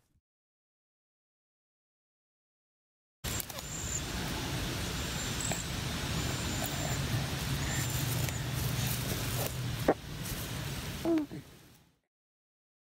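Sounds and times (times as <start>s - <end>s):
low motor drone: 3.4s - 10.3s.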